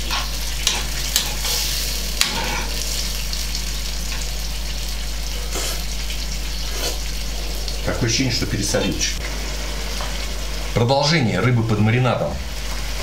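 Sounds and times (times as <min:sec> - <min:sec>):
marinade sizzling in a frying pan: 0:00.0 - 0:13.0.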